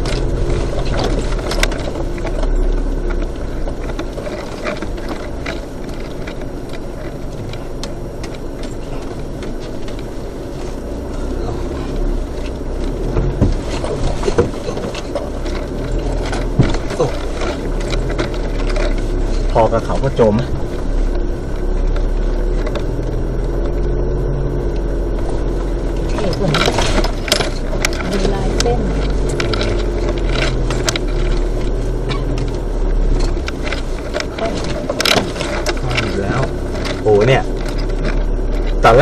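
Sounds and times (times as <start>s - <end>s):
engine and tyre rumble: 0.0s - 39.0s
vehicle knocks and rattles: 0.0s - 39.0s.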